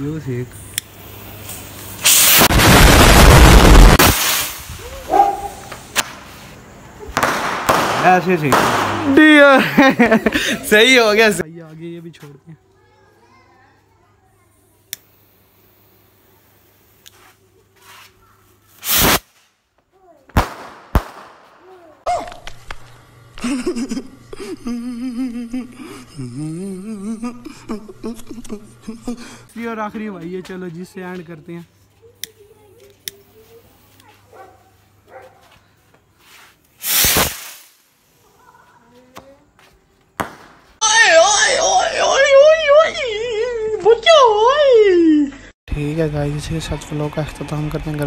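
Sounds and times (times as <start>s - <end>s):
firework launching whoosh: 1.1s - 5.1s, 7.2s - 9.2s, 18.8s - 19.6s, 20.4s - 21.6s, 36.8s - 37.9s, 40.2s - 40.7s
firework sharp bangs: 2.0s - 6.3s, 7.1s - 9.3s, 18.8s - 19.5s, 20.3s - 21.7s, 36.8s - 37.8s, 40.2s - 40.8s.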